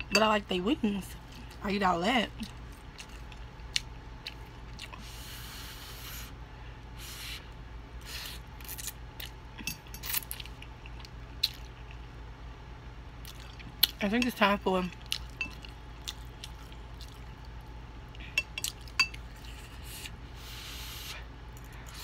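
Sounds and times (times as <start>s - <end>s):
wet chewing: 2.3s - 5.3s, 10.0s - 12.1s, 13.2s - 14.0s, 14.9s - 20.2s.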